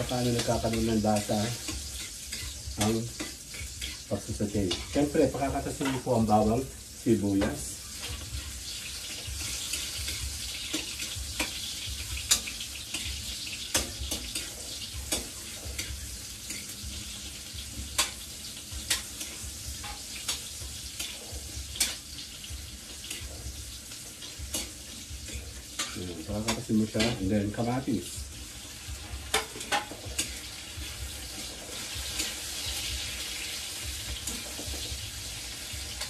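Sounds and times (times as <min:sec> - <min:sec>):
spoon scraping pan: 0:00.0 - 0:06.4, 0:07.3 - 0:27.4
food sizzling in oil: 0:00.0 - 0:36.0.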